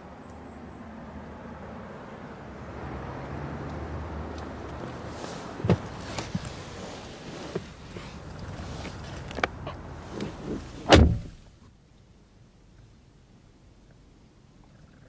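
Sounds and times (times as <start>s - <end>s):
rustling and handling noise: 4.6s - 11.6s.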